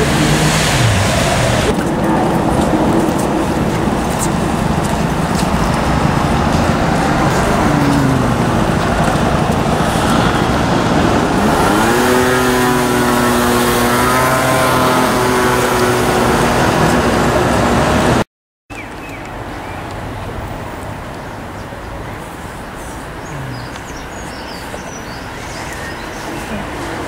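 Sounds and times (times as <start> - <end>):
vehicle engine rising in pitch: 0.0 - 4.3, 5.5 - 18.2
road traffic noise: 0.0 - 27.0.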